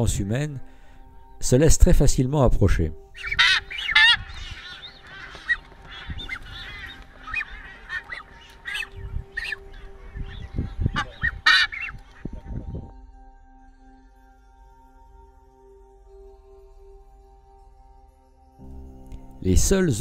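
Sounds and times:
birds honking calls: 3.0 - 12.7.

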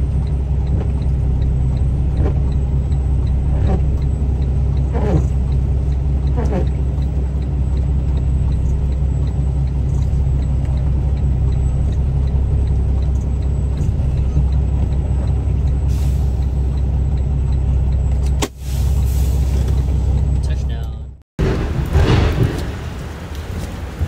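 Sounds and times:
faint regular ticking: 0.0 - 18.4
diesel engine idling: 0.0 - 24.0.

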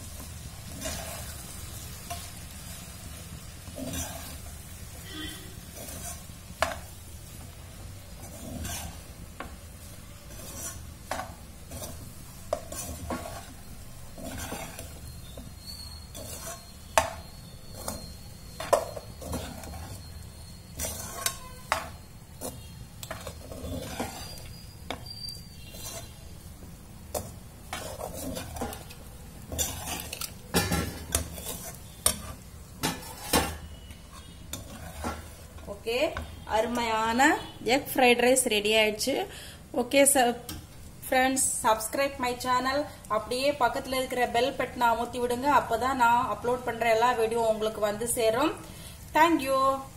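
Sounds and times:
faint frying sizzle: 0.0 - 49.9
metal spatula scraping metal pan: 0.7 - 2.3, 3.6 - 4.5, 5.2 - 6.8, 8.1 - 9.1, 9.8 - 26.4, 27.1 - 37.5.

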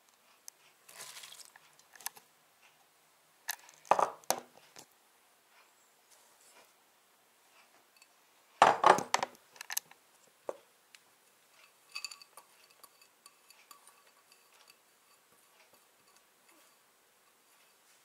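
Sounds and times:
ceramic cup knocking on glass bowl: 8.6 - 9.2.

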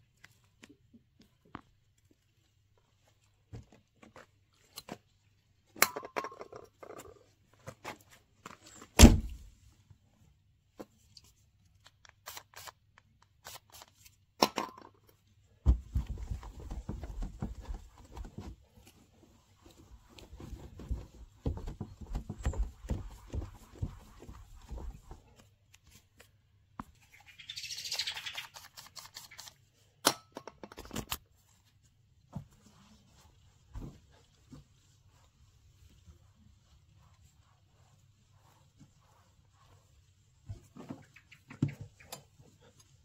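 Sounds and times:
aerosol spraying: 12.1 - 14.1
cloth rubbing on metal panel: 15.8 - 25.5, 32.5 - 43.0.

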